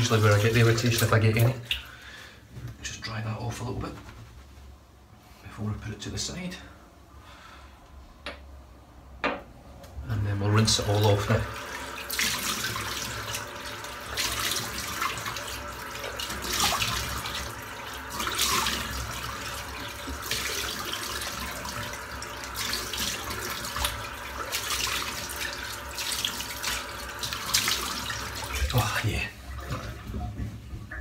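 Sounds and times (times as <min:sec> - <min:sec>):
water splashing: 0:10.8 - 0:30.4.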